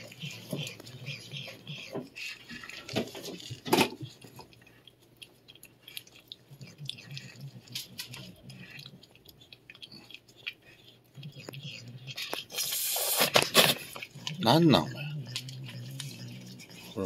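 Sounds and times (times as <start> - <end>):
cat licking and chewing: 0.0 - 17.0.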